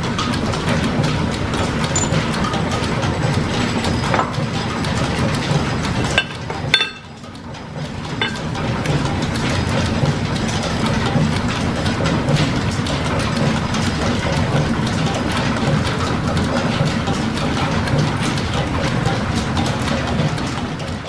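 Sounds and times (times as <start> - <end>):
machine shop clatter: 0.0 - 21.0
metal clinks: 1.9 - 2.2, 6.8 - 7.1.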